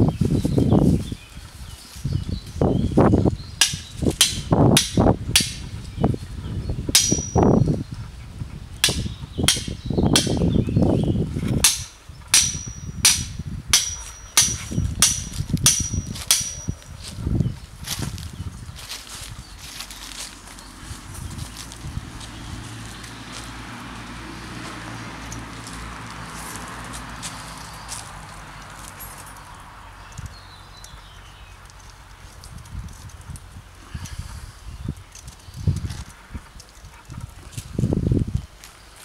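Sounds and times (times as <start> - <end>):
hammer striking steel stake: 3.6 - 5.7, 7.0 - 7.6, 8.8 - 10.5, 11.6 - 16.9.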